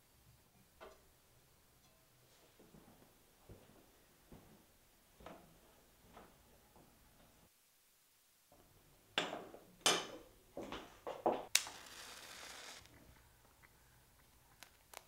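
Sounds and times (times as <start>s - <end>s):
short hiss: 11.6s - 12.9s.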